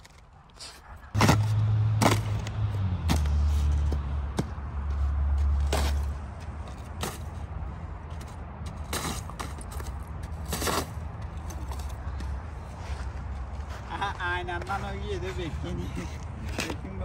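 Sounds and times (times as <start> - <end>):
ice cracking under shoes: 8.7 - 12.3.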